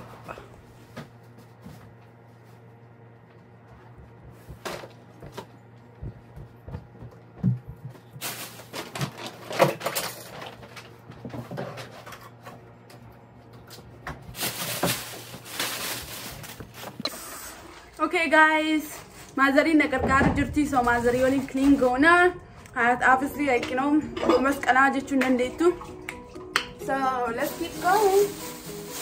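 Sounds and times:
low steady hum: 0.0 - 29.0
rustling: 14.3 - 17.0.

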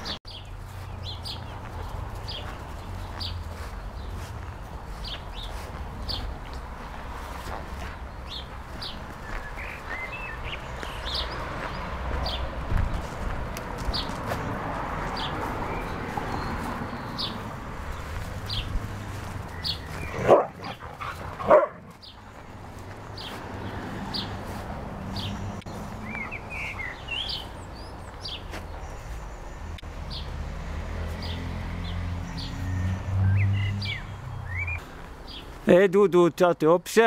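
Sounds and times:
dog barking: 20.2 - 21.9.

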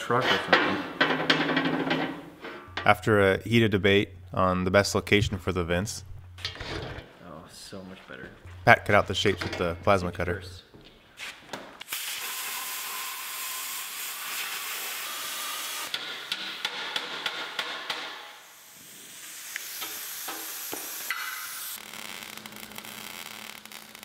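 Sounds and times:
plasma cutter hissing: 11.9 - 15.9, 18.4 - 21.8.

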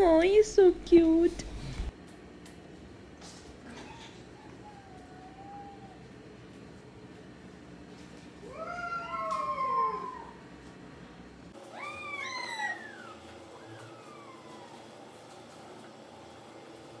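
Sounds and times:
cats meowing: 3.7 - 6.2, 11.7 - 14.8.

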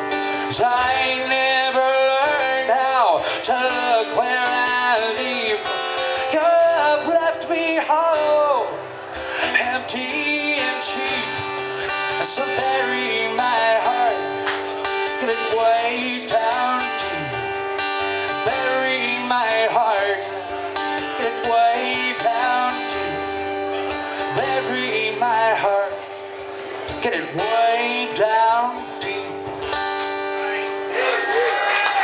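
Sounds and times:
acoustic guitars strummed and picked: 0.0 - 31.3
person singing: 0.2 - 8.8, 9.4 - 14.4, 15.1 - 17.6, 18.2 - 26.1.

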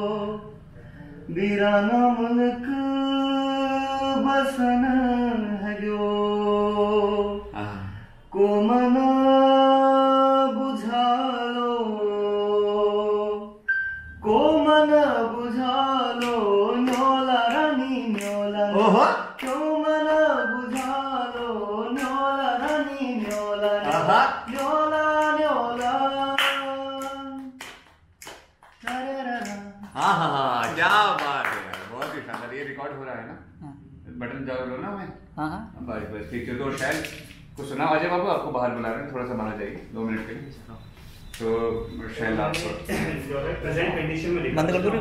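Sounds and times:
man singing unaccompanied: 0.0 - 0.7, 1.3 - 7.6, 8.3 - 27.6, 28.8 - 31.0
hand claps: 16.2 - 18.5, 19.3 - 19.8, 20.6 - 32.6, 42.5 - 42.8.

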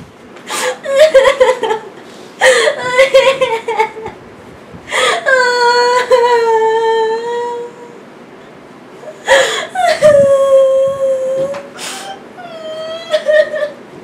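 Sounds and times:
woman crying: 0.6 - 4.1, 4.9 - 8.0, 9.0 - 13.8.

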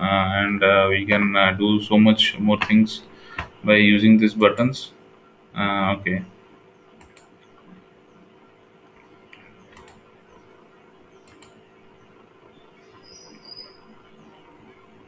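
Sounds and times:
low steady hum: 0.0 - 15.0
computer mouse clicks: 7.0 - 7.8, 9.0 - 10.0, 11.2 - 11.6.

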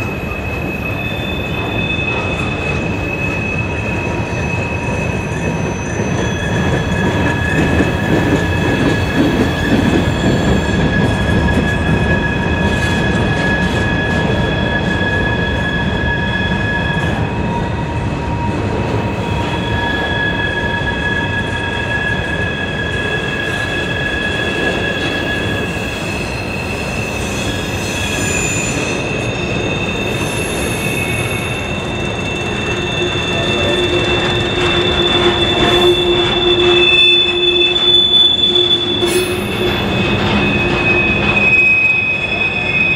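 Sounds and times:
train rumble: 0.0 - 42.9
train wheels squealing on rail: 0.0 - 42.9.

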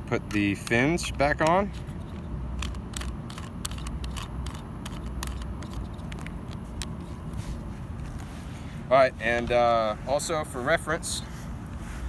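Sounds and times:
low outdoor rumble: 0.0 - 12.0
plastic clicks and rubbing: 0.3 - 7.0.

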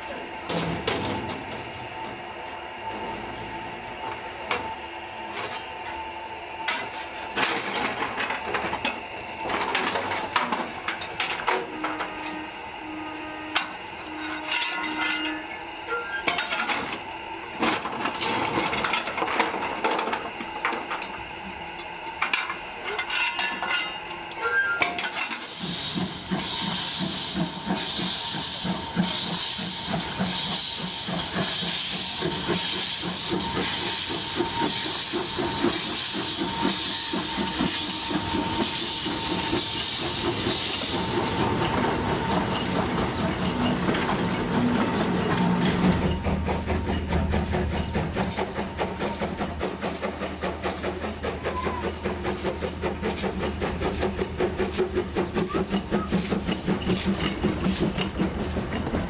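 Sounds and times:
knocks and clanks of controls: 0.4 - 2.2, 6.7 - 15.3, 17.6 - 21.2, 52.3 - 59.0
loud hiss of steam with pulsing: 25.2 - 58.7.

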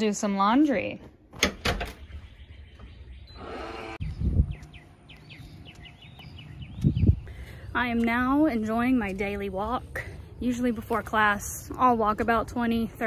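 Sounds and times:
birds chirping: 1.7 - 13.0.

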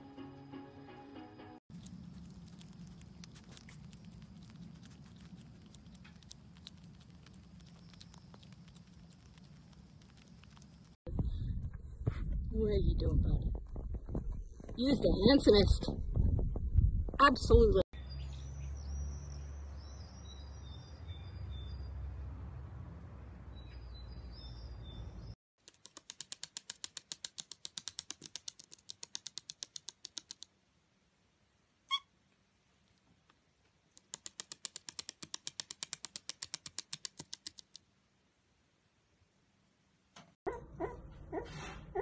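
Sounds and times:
small birds chirping: 1.8 - 11.0, 18.0 - 22.2, 23.4 - 25.4
low rumble: 11.1 - 17.8
parrot squeak: 31.9 - 32.1.

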